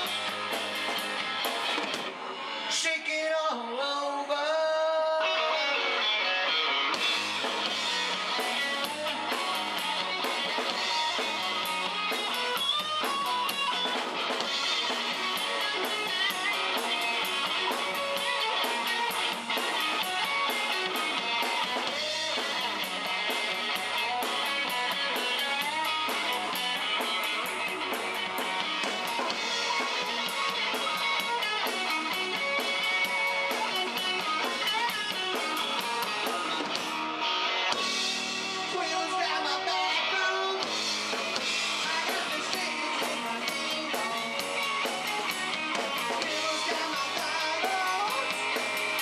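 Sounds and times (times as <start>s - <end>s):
electric guitar picking: 0.0s - 2.7s, 5.3s - 49.0s
drum kit with cymbals: 0.0s - 3.0s, 6.8s - 49.0s.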